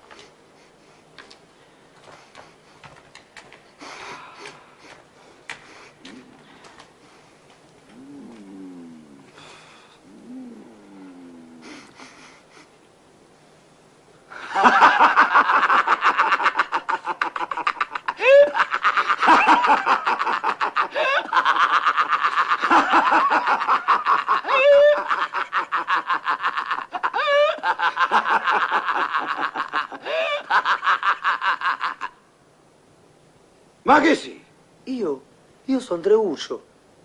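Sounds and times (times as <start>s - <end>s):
people laughing hard: 14.4s - 32.1s.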